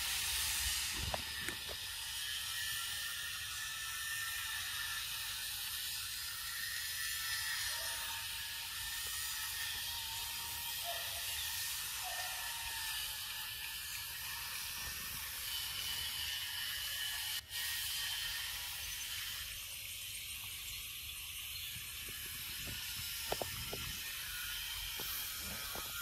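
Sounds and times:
insects chorus hissing: 0:17.6 - 0:26.0.

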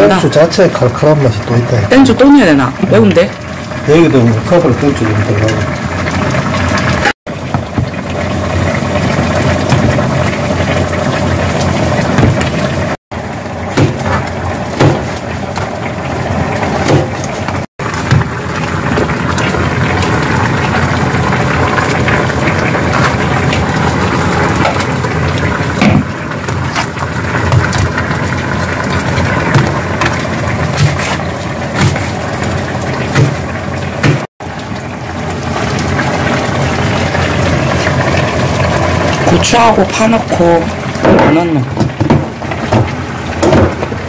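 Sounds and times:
pot boiling on gas stove: 0:00.0 - 0:44.0
knife chopping on plastic board: 0:13.8 - 0:14.1.

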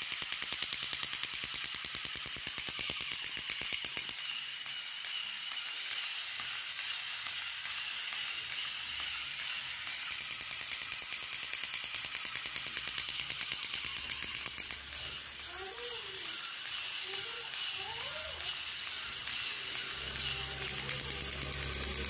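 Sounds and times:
toy motor and gears clicking: 0:00.0 - 0:22.0
rising and falling toy tones: 0:11.8 - 0:22.0.

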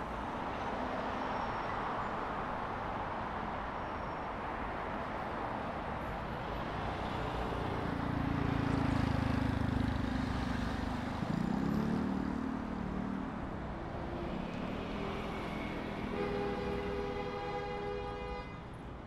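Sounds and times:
cars passing: 0:05.5 - 0:18.1.

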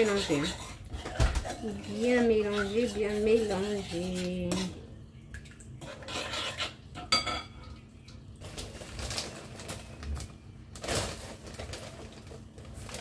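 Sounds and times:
spoon stirring in glass bowl: 0:00.0 - 0:04.8, 0:05.8 - 0:07.6
plastic bag rustling: 0:08.4 - 0:13.0.

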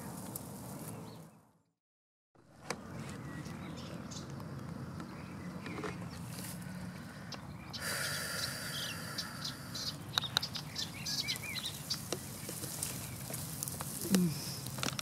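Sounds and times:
bird chirps: 0:03.0 - 0:06.2, 0:07.0 - 0:13.4.

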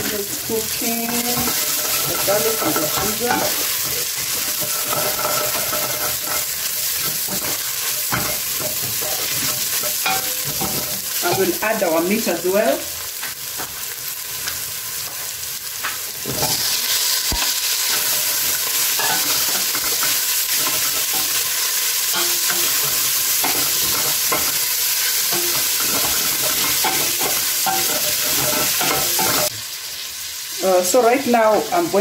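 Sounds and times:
meat sizzling in a pot: 0:00.0 - 0:32.0
wooden spoon scraping a pot: 0:01.0 - 0:11.6.

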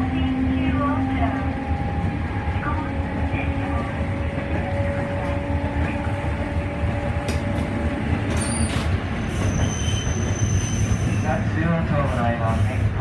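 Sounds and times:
rumble of tram wheels on rails: 0:00.0 - 0:13.0
faint high wheel squeal: 0:08.4 - 0:11.4.

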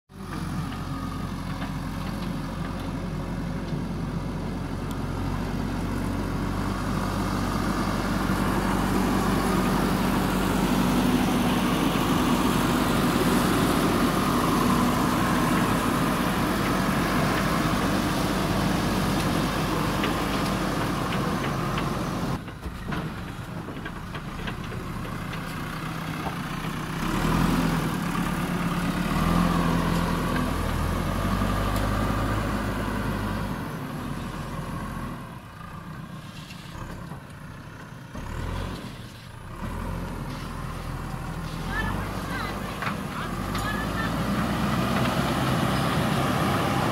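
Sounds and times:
diesel engine running: 0:00.1 - 0:46.9.

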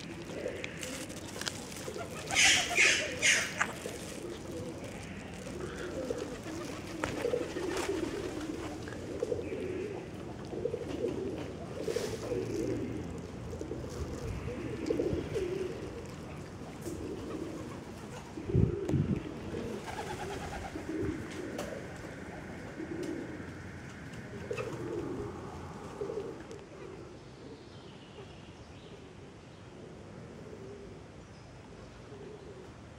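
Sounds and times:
birds cooing: 0:00.0 - 0:27.6, 0:32.0 - 0:32.9.

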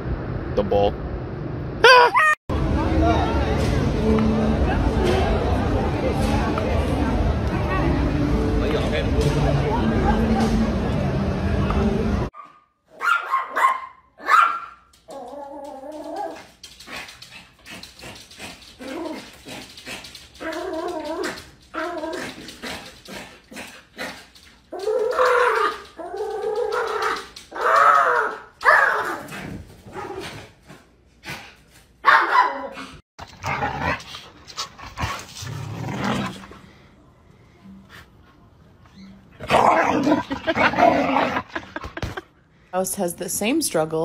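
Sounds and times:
small dog barking: 0:12.4 - 0:14.8, 0:32.0 - 0:32.8.

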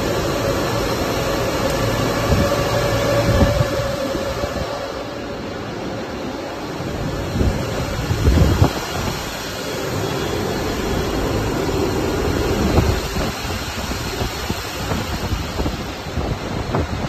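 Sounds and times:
cooling fans rushing: 0:00.0 - 0:17.0.

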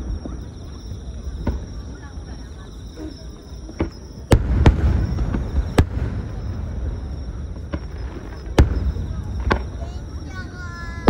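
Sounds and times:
firework shells bursting: 0:03.7 - 0:10.4.

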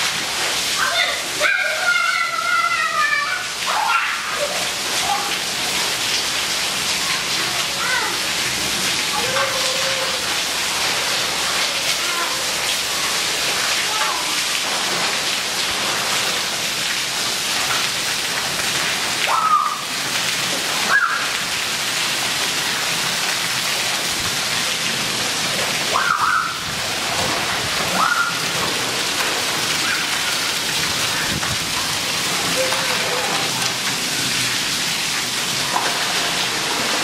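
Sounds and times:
heavy rain on paving: 0:00.0 - 0:37.0
children crying out: 0:00.8 - 0:05.4, 0:09.1 - 0:10.3, 0:19.3 - 0:19.9, 0:25.9 - 0:26.7, 0:29.8 - 0:31.4.

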